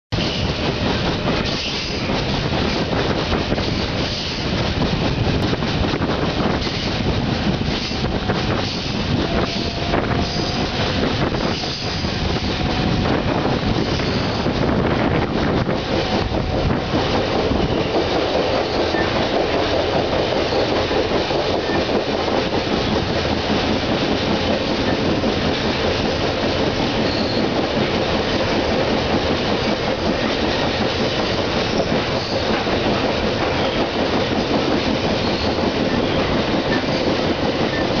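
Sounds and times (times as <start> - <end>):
train wheels on rail: 0.1 - 38.0.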